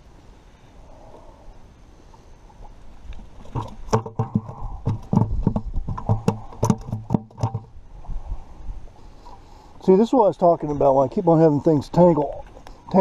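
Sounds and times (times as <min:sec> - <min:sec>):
sharp knocks and slaps: 0:03.5 - 0:07.7.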